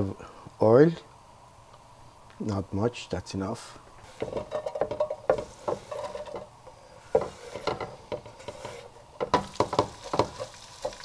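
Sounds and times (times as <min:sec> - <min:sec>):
utensil scraping a pan: 0:04.0 - 0:11.0.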